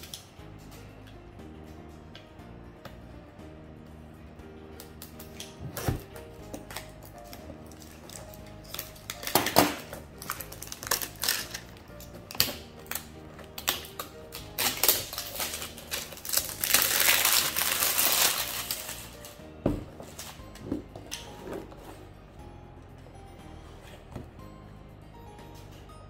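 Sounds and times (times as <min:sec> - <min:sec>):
soft background music: 0:00.0 - 0:26.0
plastic wrap crackling and tearing: 0:04.8 - 0:19.4.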